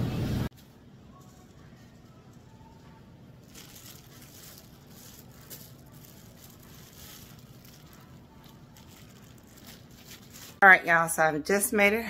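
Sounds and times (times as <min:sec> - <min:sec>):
plastic bags crinkling: 0:03.4 - 0:10.6.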